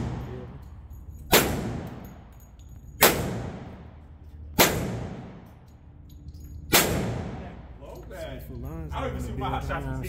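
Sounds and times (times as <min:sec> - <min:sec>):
gunshots echoing: 0:00.0 - 0:00.6, 0:01.3 - 0:02.3, 0:03.0 - 0:05.5, 0:06.7 - 0:07.7.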